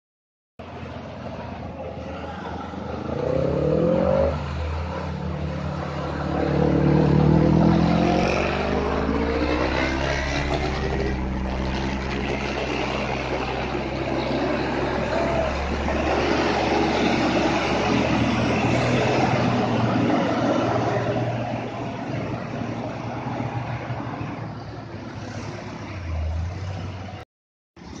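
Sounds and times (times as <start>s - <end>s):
diesel truck engines: 0.6s - 28.0s.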